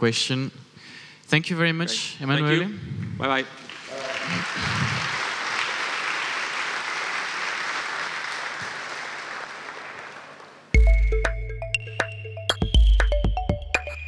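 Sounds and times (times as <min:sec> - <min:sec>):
audience applauding: 0:03.6 - 0:10.7
electronic music with heavy bass: 0:10.8 - 0:14.0.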